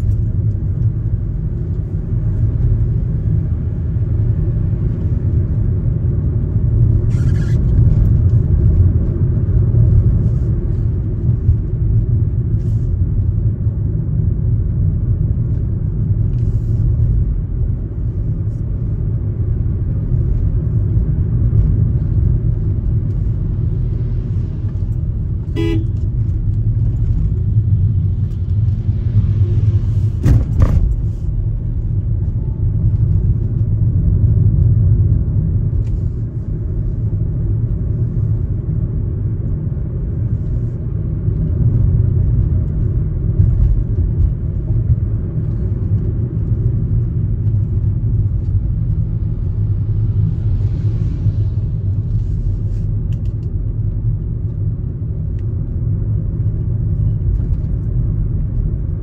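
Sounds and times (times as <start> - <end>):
car driving rumble: 0.0 - 59.0
car horn toot: 25.5 - 26.0.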